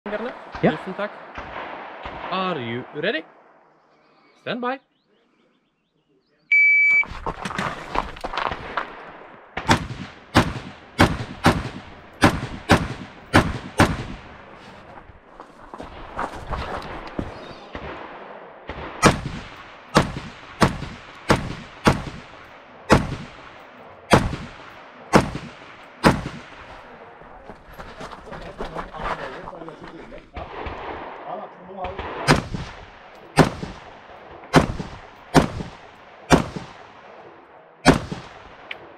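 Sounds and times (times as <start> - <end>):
rifle shots: 0.1 - 3.4, 7.6 - 14.9, 15.8 - 27.0, 30.4 - 38.9.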